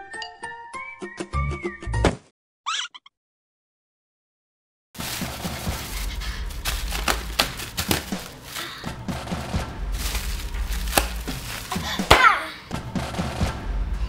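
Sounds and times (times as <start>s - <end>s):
bubble wrap popping: 5.0s - 8.8s, 9.9s - 12.4s.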